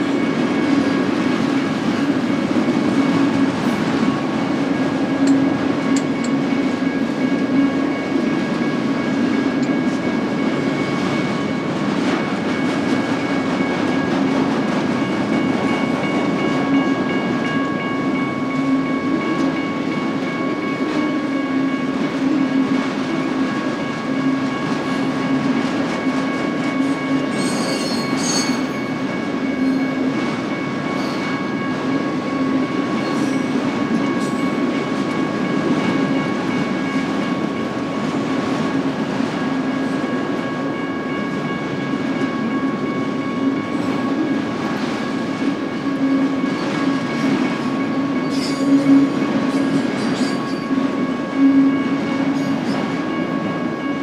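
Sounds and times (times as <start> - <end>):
train wheels rumbling on rail: 0.0 - 54.0
high wheel squeal: 27.2 - 28.8, 48.2 - 50.8.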